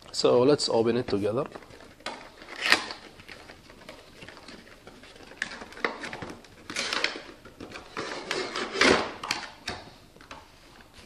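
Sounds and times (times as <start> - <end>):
plastic wrapping crinkling: 1.1 - 9.6.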